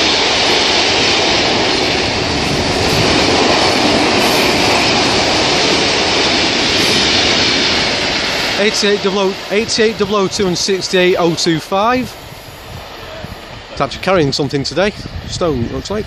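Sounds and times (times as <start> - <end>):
steel train wheels on rails: 0.0 - 16.0.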